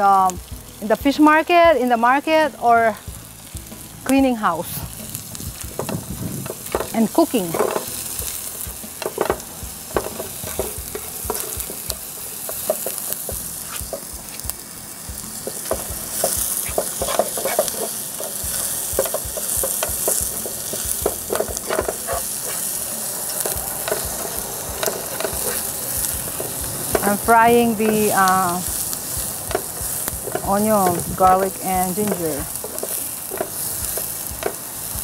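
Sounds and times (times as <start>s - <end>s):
vegetables sizzling in oil: 0.0s - 35.0s
spatula scraping and tapping pan: 5.6s - 14.6s, 15.4s - 35.0s.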